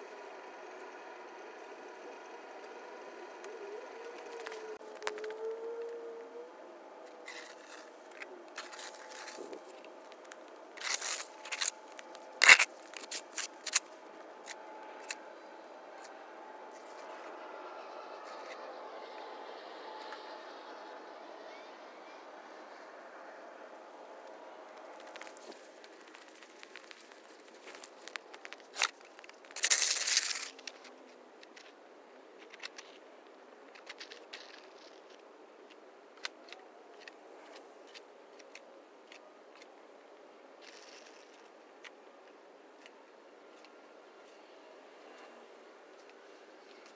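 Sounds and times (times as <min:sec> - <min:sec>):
snow shovel scraping asphalt: 0:07.2 - 0:14.6.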